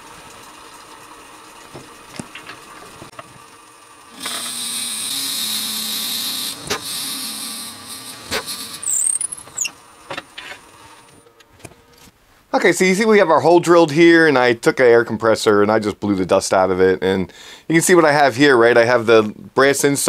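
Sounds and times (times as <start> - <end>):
wood lathe humming: 3.1 - 11.2
drill bit boring into wood: 4.0 - 9.8
clicks and short squeaks: 8.3 - 9.8.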